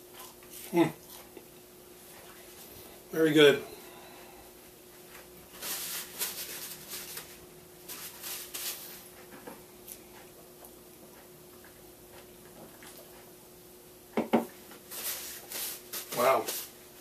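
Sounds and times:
faint steady hum: 0:00.0 - 0:17.0
foil wrapper crinkling: 0:05.6 - 0:09.0.

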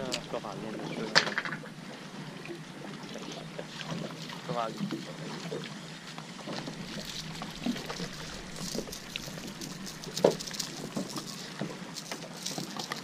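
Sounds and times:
water lapping against boat hull: 0:00.0 - 0:13.0.

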